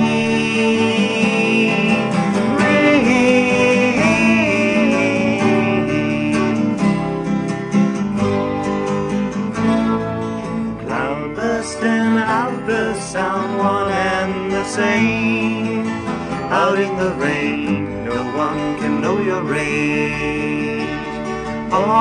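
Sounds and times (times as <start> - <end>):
gliding melody line: 0.0 - 8.7
acoustic guitar: 0.0 - 22.0.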